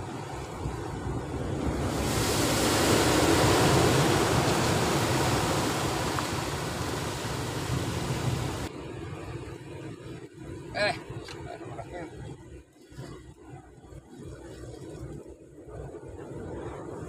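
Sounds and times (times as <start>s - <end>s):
surf breaking over rocks: 0.2s - 8.7s.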